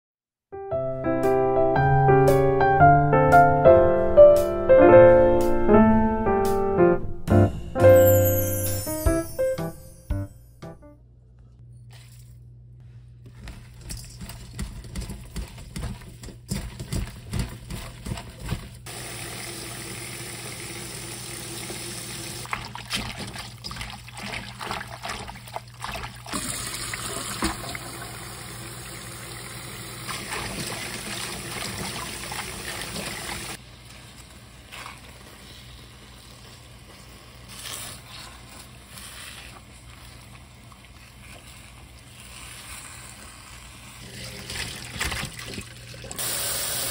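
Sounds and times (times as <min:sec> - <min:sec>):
kitchen tap running into bowl: 0:26.0 - 0:33.6
chopsticks stirring in hot water: 0:34.1 - 0:44.1.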